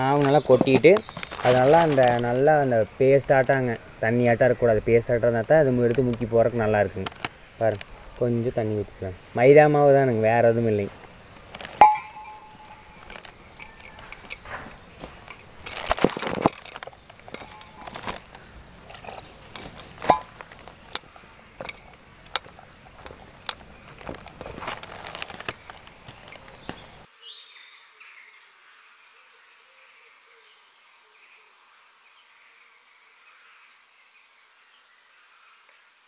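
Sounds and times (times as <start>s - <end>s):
faint insect chirping: 0.0s - 36.0s
metal knocks and scrapes: 11.5s - 20.7s
steel tumbler clinking against pot: 11.5s - 20.8s, 21.6s - 25.3s.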